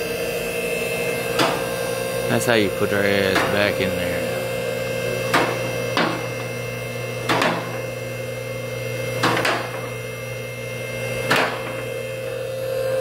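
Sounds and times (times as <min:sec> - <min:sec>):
steady hum: 0:00.0 - 0:13.0
sharp knocks: 0:05.3 - 0:06.3, 0:07.2 - 0:07.8.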